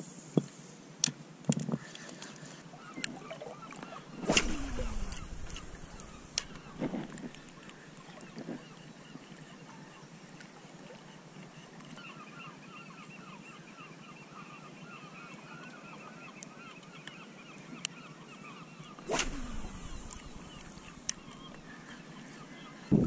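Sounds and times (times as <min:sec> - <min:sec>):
flock of birds calling: 0:02.8 - 0:08.7, 0:18.4 - 0:23.0.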